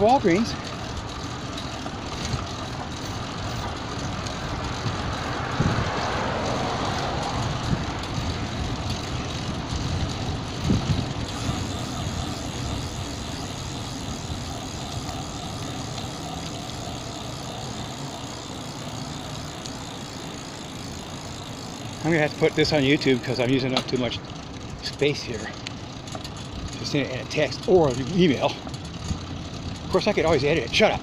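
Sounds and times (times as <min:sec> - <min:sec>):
road traffic: 0:00.0 - 0:31.0
vehicle passing: 0:00.0 - 0:31.0
wind rumble: 0:00.0 - 0:31.0.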